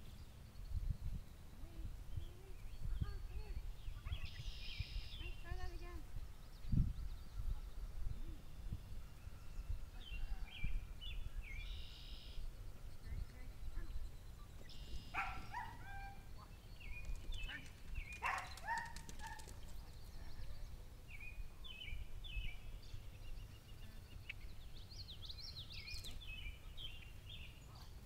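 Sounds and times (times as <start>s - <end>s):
wind rumble on microphone: 0.0s - 11.7s
songbirds chirping: 0.0s - 28.0s
distant calls: 11.2s - 20.8s.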